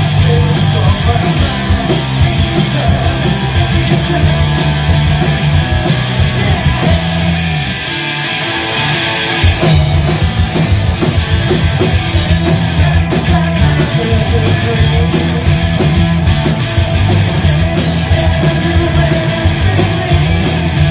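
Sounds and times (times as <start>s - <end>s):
bass guitar: 0.0s - 20.9s
driving drum beat: 0.0s - 20.9s
electric guitars: 0.0s - 20.9s.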